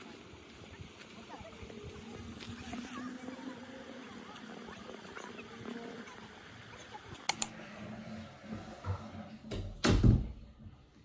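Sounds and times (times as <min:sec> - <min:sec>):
sharp clicks: 0:07.2 - 0:07.5.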